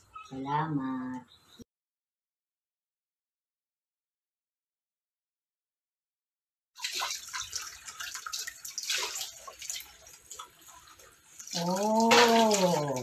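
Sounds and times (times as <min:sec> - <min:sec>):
tap water splashing into sink: 0:06.8 - 0:13.0.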